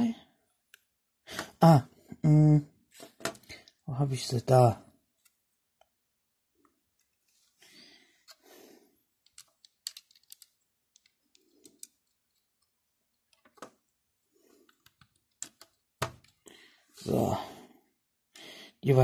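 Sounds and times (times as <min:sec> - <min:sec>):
plastic bricks clicking: 0:09.2 - 0:13.9, 0:14.7 - 0:16.4.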